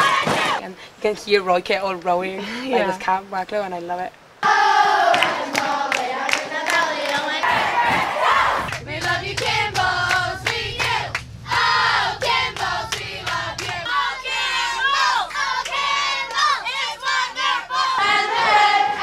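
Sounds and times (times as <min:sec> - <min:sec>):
girls singing and shouting chant: 0:00.0 - 0:00.6, 0:04.4 - 0:19.0
hands clapping: 0:05.1 - 0:08.1.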